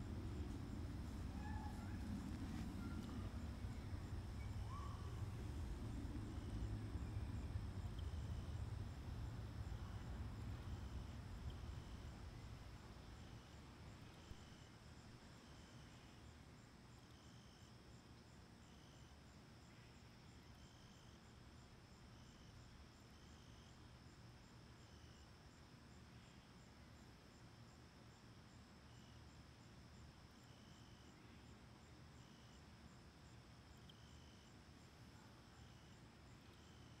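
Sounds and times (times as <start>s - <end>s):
low background rumble: 0.0s - 14.4s
insects chirping: 0.0s - 37.0s.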